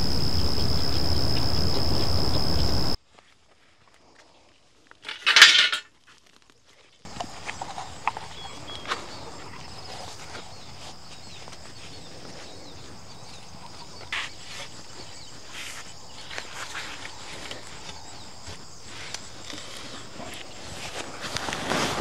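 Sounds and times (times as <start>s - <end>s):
steady high background noise: 0.0s - 3.0s.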